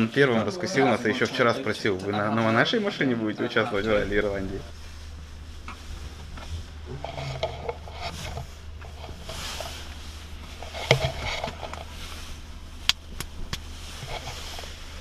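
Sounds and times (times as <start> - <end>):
car engine idling hum: 3.5 - 15.0.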